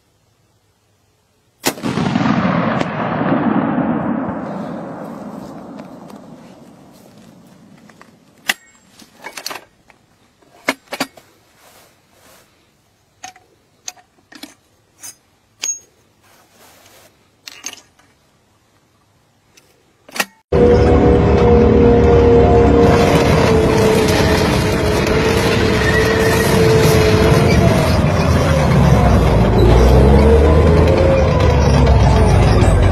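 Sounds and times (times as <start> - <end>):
metallic clicks of gun action: 19.5 - 20.4
loud steady engine: 20.5 - 32.9.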